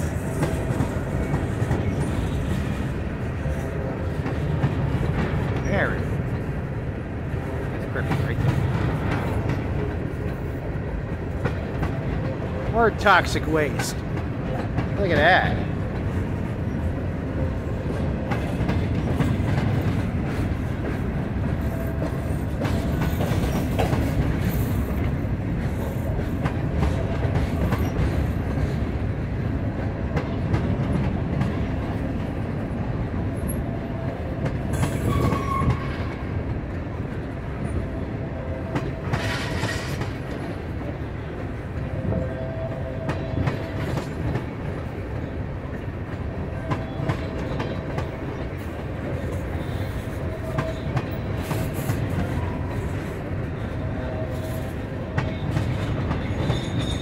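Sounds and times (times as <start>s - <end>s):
freight train rumbling past: 0.0s - 57.0s
faint wheel squeal: 35.0s - 36.0s, 56.2s - 57.0s.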